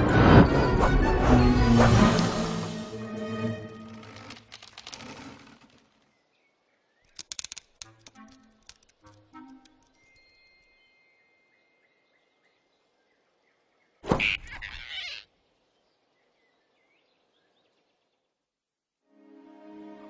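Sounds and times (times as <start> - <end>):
soft orchestral music: 0.0 - 4.3, 7.9 - 11.6, 19.1 - 20.0
faint forest ambience: 1.6 - 19.5.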